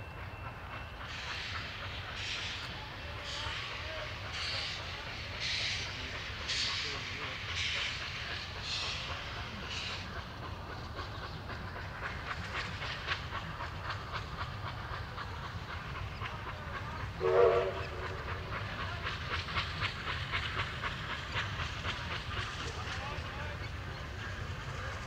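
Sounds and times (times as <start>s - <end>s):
steam locomotive exhaust beating: 0.0s - 25.0s
steam whistle blast: 17.2s - 18.1s.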